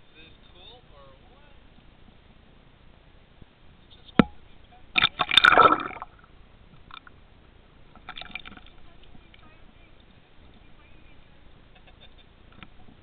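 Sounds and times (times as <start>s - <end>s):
water splashing and sloshing: 4.9s - 7.2s, 7.8s - 9.4s.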